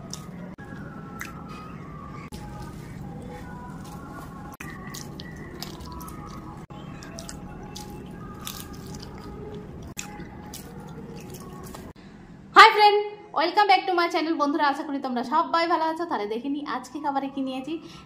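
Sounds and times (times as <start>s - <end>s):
chewing: 0.0s - 12.0s
wet squelching of food mashed by hand: 2.3s - 12.0s.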